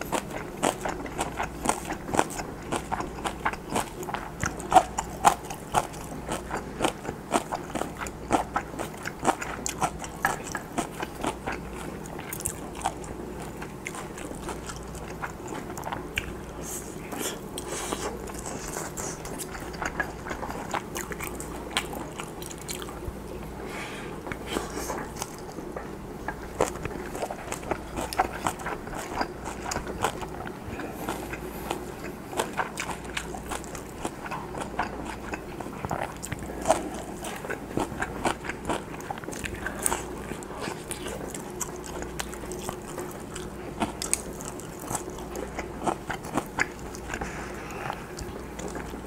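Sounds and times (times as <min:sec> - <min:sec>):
crunchy wet chewing: 0:00.0 - 0:23.6, 0:24.2 - 0:49.0.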